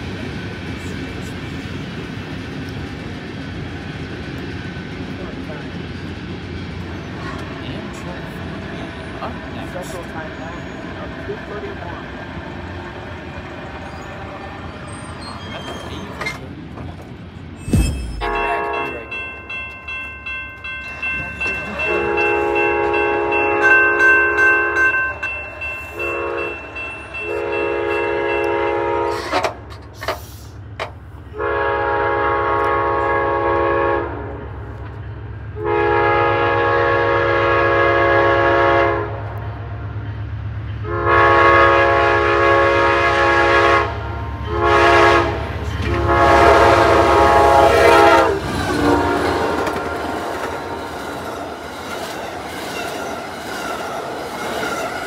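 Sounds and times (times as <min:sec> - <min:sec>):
diesel engines droning: 0:00.0 - 0:55.0
train passing with rumble: 0:00.0 - 0:55.0
train horn blasts: 0:18.2 - 0:19.2, 0:21.7 - 0:24.9, 0:26.0 - 0:29.5, 0:31.3 - 0:34.4, 0:35.6 - 0:39.4, 0:40.8 - 0:50.8.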